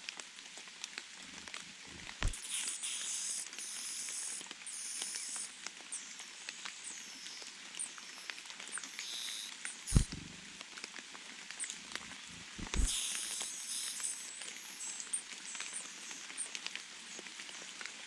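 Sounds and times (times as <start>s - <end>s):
faint clicking: 0.8s - 17.9s
nestlings begging calls: 2.0s - 10.4s, 11.6s - 16.5s.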